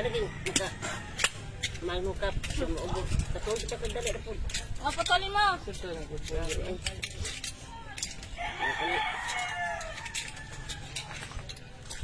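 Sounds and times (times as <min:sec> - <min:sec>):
rooster crowing: 0:08.4 - 0:11.4.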